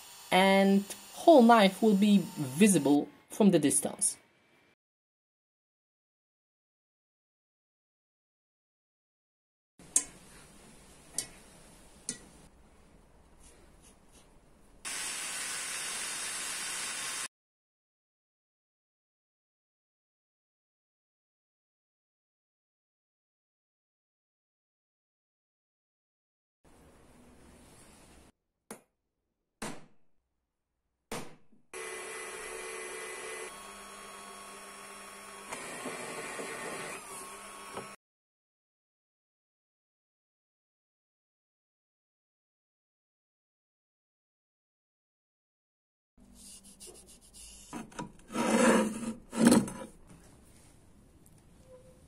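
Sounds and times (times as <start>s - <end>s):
power tool humming whine: 0.0s - 2.7s, 31.8s - 38.0s
spraying hiss: 14.9s - 17.3s.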